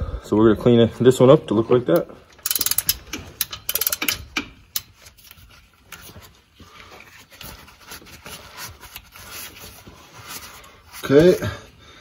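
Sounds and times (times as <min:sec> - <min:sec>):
rubbing and scraping by hand: 0:04.9 - 0:11.5.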